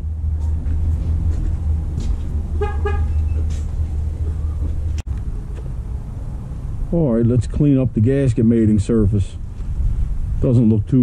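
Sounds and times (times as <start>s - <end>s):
vehicle engine rumbling: 0.0s - 11.0s
car horn toots: 2.6s - 3.4s.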